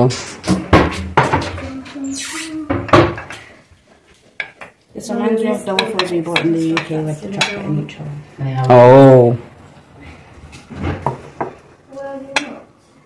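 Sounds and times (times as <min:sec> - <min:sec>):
soft voices talking: 0:01.4 - 0:03.0.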